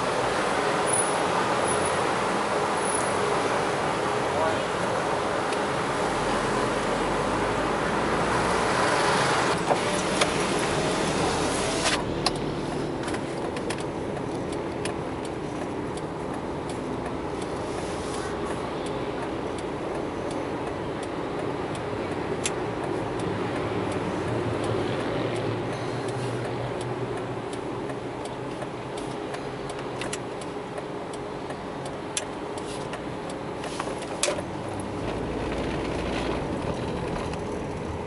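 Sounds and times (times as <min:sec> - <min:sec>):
road noise inside a car: 0:00.0 - 0:38.0.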